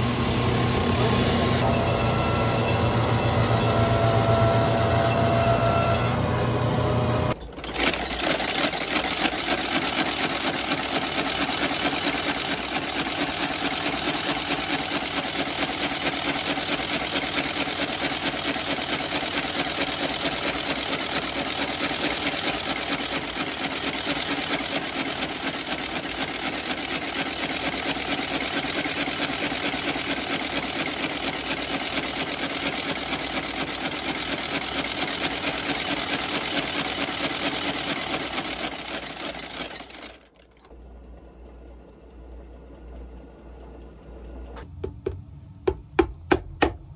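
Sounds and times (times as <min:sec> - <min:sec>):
stitching machine clattering: 0:07.4 - 0:40.7.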